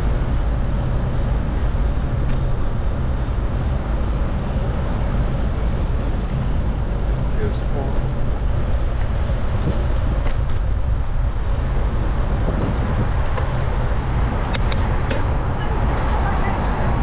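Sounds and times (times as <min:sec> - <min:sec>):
road traffic rumble: 0:00.0 - 0:17.0
sharp clicks: 0:14.4 - 0:14.9.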